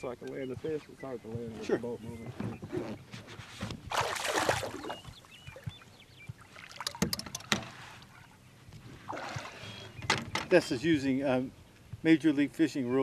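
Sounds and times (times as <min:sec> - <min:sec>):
fish splashing in water: 0:03.9 - 0:05.7, 0:09.1 - 0:09.8
sharp clicks and knocks: 0:06.8 - 0:07.7.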